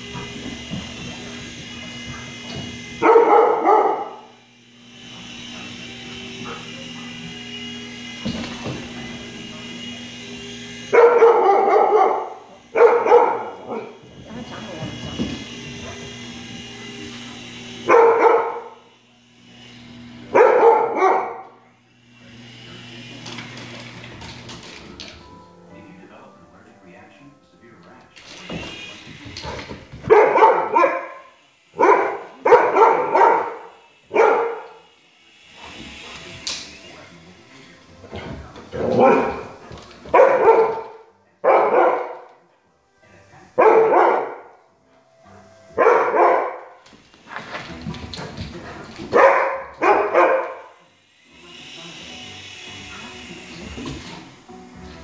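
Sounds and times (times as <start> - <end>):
puppy barking: 3.0 - 4.3, 10.9 - 14.0, 17.9 - 18.8, 20.3 - 21.6, 30.1 - 34.8, 40.1 - 42.3, 43.6 - 44.5, 45.8 - 46.8, 49.1 - 50.8.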